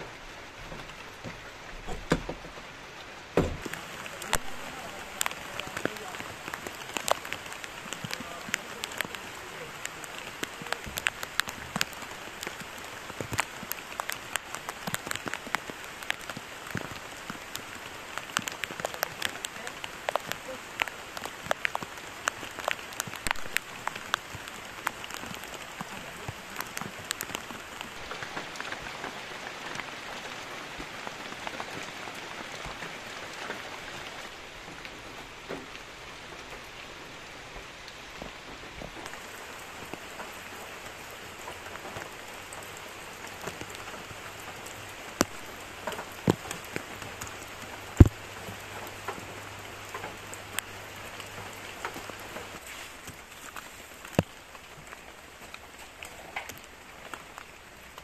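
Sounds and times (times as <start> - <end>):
heavy rain falling: 0.0 - 58.0
sharp drips landing close: 3.4 - 29.9, 38.2 - 58.0.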